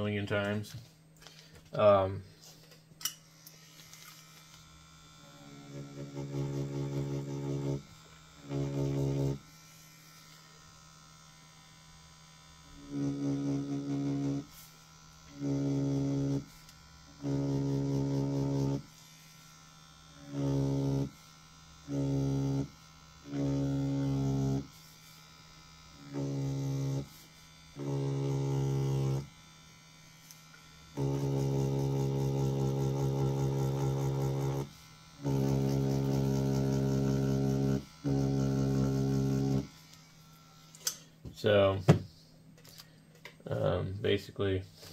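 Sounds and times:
tattoo machine buzzing: 2.6 - 41.2.

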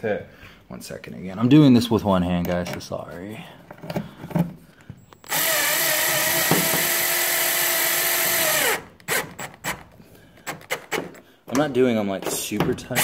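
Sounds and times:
power drill driving screw into metal: 5.2 - 11.2.

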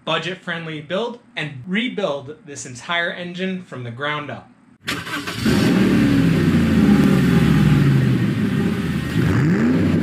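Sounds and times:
car engine revving: 4.9 - 10.0.

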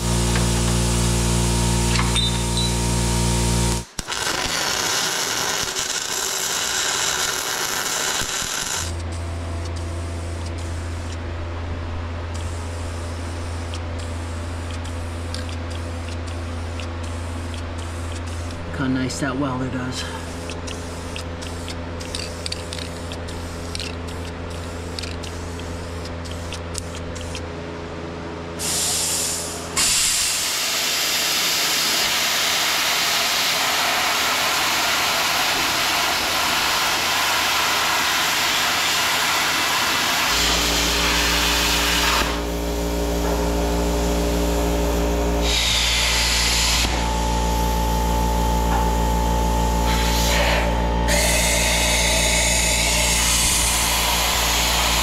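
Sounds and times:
plasma cutter cutting steel: 0.0 - 9.0, 28.6 - 55.0
low machine hum: 0.0 - 28.6, 40.3 - 55.0
spray-paint can hissing: 7.4 - 11.2, 12.3 - 18.6, 20.2 - 27.4, 28.6 - 42.6.

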